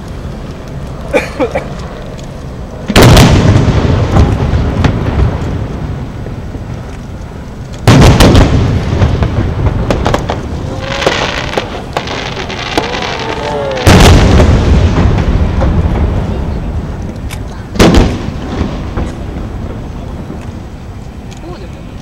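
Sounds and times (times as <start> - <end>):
rumbling echo: 0.0 - 21.2
fireworks booming: 0.0 - 21.3
faint firework pops: 7.8 - 19.4.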